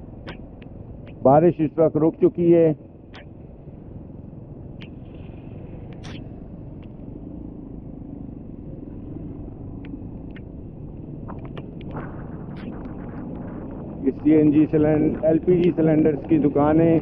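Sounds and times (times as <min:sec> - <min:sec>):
motorcycle engine rumble: 0:00.0 - 0:17.0
road noise on wet road: 0:00.0 - 0:17.0
faint clicks: 0:00.2 - 0:01.2, 0:04.8 - 0:07.0, 0:09.8 - 0:10.5.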